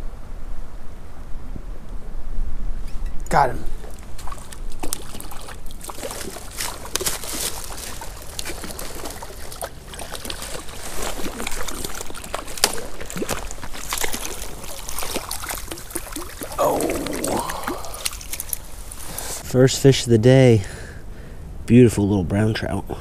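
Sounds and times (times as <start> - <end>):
creek water running: 3.3 - 19.6
fish thrashing splashes: 3.8 - 19.4.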